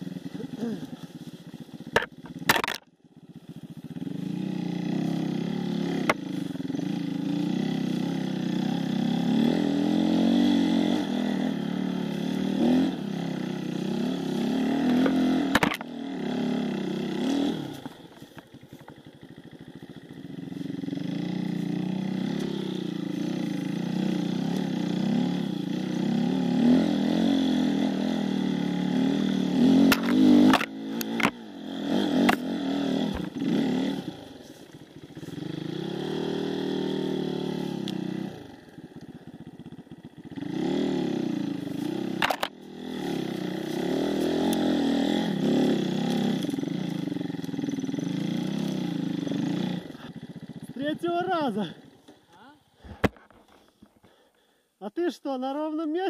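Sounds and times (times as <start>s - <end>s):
dirt bike engine revving: 0.0s - 2.8s, 3.4s - 52.2s
sharp knocks and clatter: 1.9s - 2.9s.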